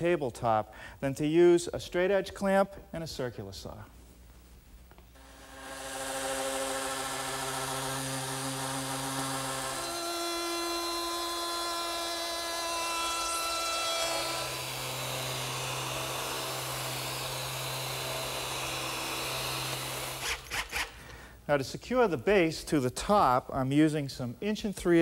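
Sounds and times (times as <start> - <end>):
electric sander running: 5.2 - 20.2
router whining: 5.2 - 21.0.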